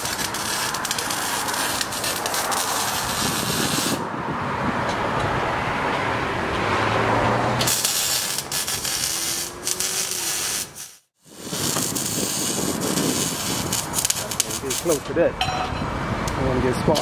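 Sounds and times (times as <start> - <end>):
welding crackling hiss: 0.0 - 4.1, 7.6 - 15.1.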